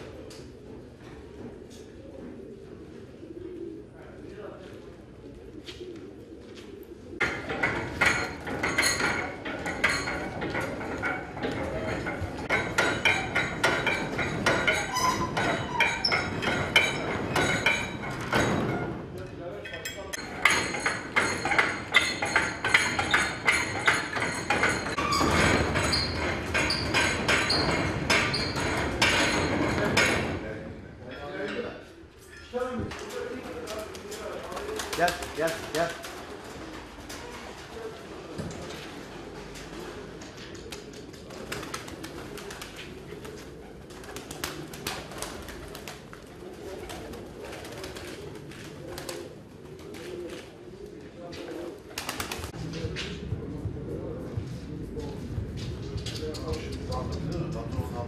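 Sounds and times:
pigeons cooing: 0.0 - 18.4, 33.5 - 57.9.

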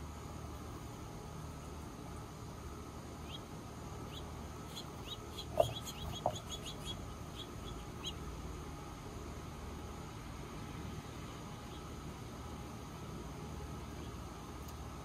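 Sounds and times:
low background hum: 0.0 - 15.0
birds chirping: 3.2 - 8.3.

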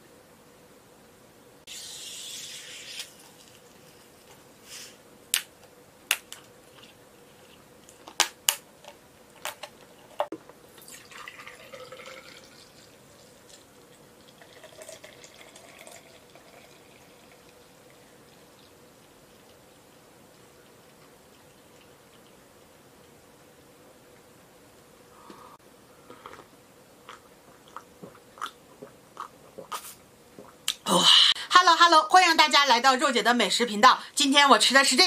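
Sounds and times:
drink pouring into glass: 10.8 - 13.6, 14.2 - 17.6.

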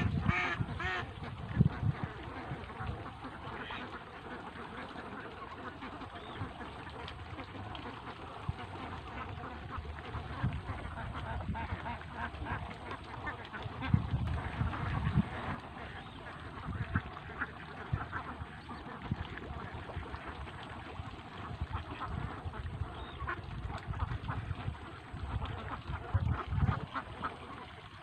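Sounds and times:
ducks quacking: 0.0 - 28.0.

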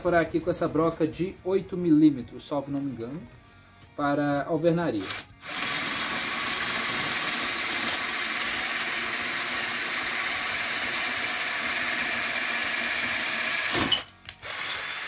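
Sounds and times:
drill grinding into brick: 5.0 - 15.0.

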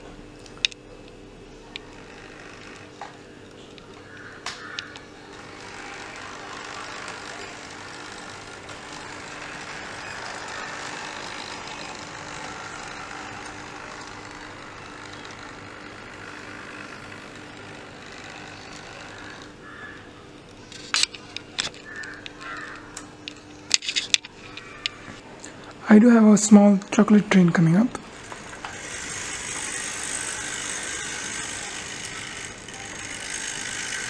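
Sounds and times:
model locomotive motor whirring: 1.6 - 25.8, 28.0 - 34.0
wheels rattling on rails: 5.2 - 19.6, 28.1 - 34.0.

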